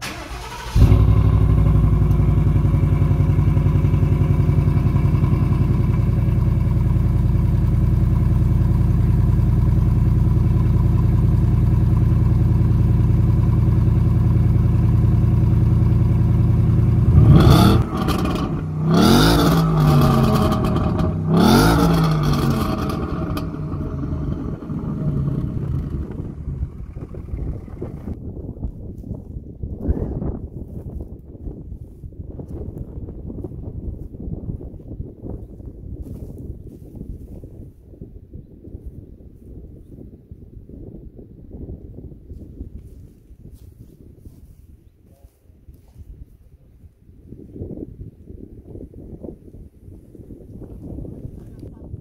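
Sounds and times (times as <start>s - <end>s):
car engine idling: 0.0s - 28.2s
car engine revving: 0.0s - 28.2s.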